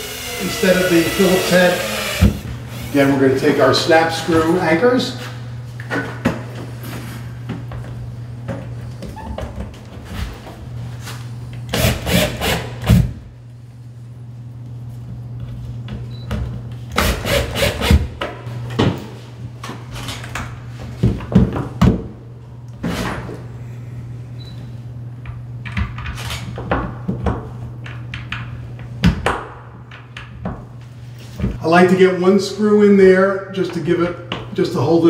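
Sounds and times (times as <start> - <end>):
drill grinding into drywall: 0.0 - 3.2, 11.7 - 12.8, 17.0 - 18.1
steady low hum: 0.0 - 35.0.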